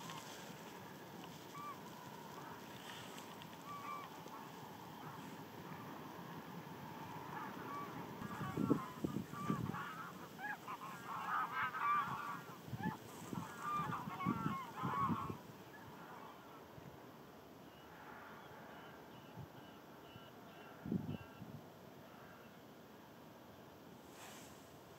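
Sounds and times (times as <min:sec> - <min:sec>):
geese honking: 0:00.0 - 0:16.6.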